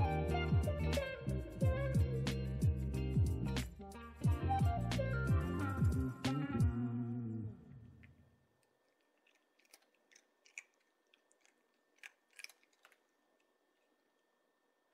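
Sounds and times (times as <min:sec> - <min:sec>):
background music: 0:00.0 - 0:07.3
cat crunching dry food: 0:08.0 - 0:14.9.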